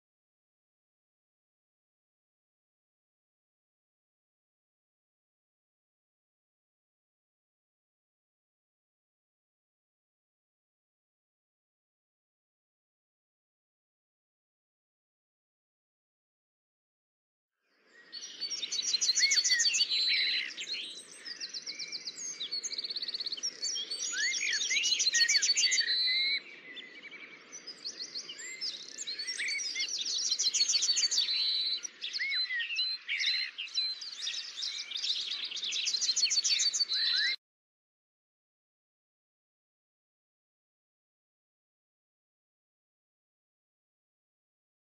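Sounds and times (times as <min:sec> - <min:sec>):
songbirds singing: 0:17.6 - 0:37.4.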